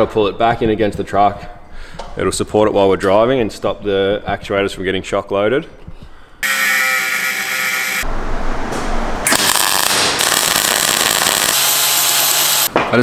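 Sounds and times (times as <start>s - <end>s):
power tool whine: 6.4s - 8.1s, 9.3s - 12.7s
loud hiss: 9.3s - 12.7s
welder crackle: 9.3s - 12.7s.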